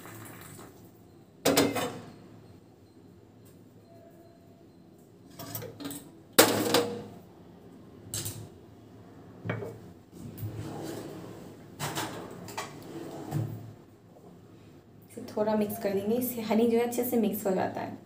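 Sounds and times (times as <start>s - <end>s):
dishes clattering on counter: 9.5s - 9.8s.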